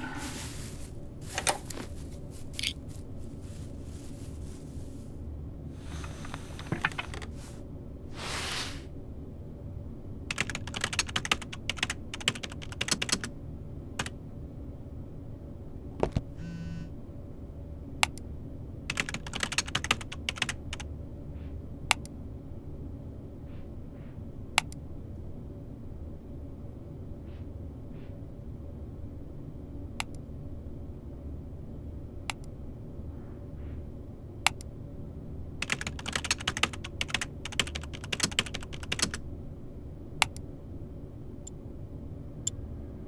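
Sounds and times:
rustling: 0.0s - 5.2s
low room hum: 0.0s - 43.0s
keyboard typing: 6.0s - 7.4s, 10.3s - 13.3s, 18.9s - 20.8s, 35.6s - 39.2s
brief electronic tone: 16.4s - 16.9s
mouse clicks: 18.0s - 18.2s, 24.6s - 24.8s, 30.0s - 30.2s, 32.3s - 32.6s, 34.4s - 34.7s, 40.2s - 40.4s.

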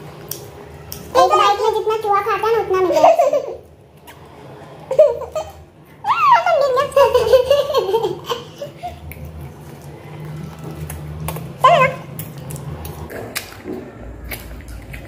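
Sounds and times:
girl laughing: 4.9s - 9.1s.

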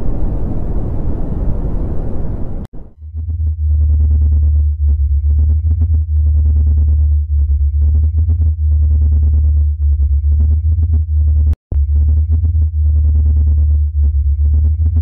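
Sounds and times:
fluttering electronic hum: 0.0s - 15.0s.

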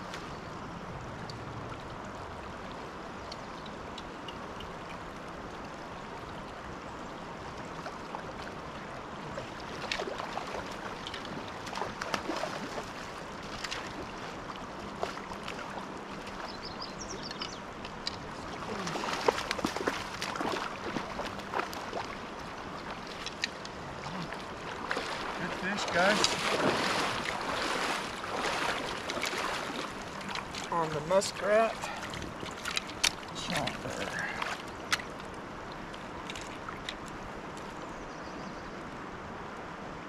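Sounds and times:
river current flowing: 0.0s - 40.0s
fish splashing: 9.4s - 16.5s, 18.4s - 36.9s.

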